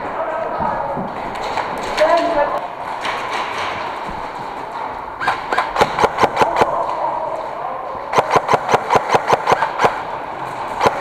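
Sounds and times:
steady background hum: 0.0s - 11.0s
airsoft rifle rapid shots: 5.2s - 6.8s, 8.1s - 10.1s, 10.8s - 11.0s.

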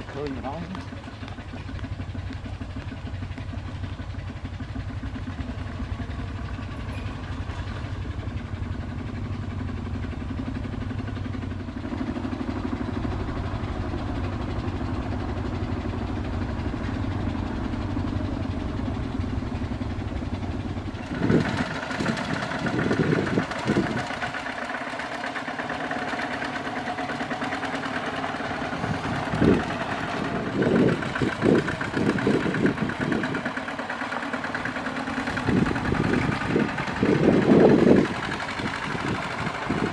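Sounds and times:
diesel engine running: 0.0s - 39.9s
low rumbling bursts: 25.4s - 39.9s.

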